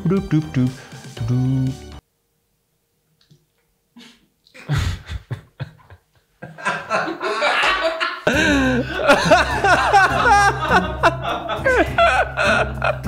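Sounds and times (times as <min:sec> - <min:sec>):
laughter and chuckling: 0:04.0 - 0:13.0.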